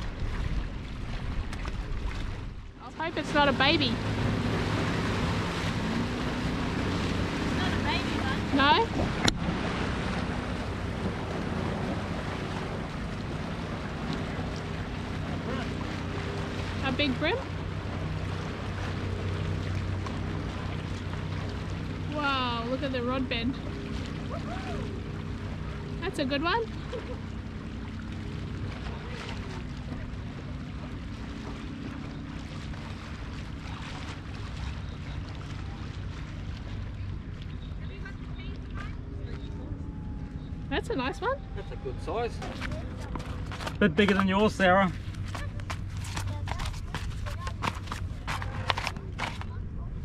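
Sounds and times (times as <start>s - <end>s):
waves lapping against rock wall: 0.0s - 39.8s, 41.8s - 50.0s
low engine drone: 0.0s - 50.0s
water noise: 0.0s - 50.0s
wind: 0.0s - 50.0s.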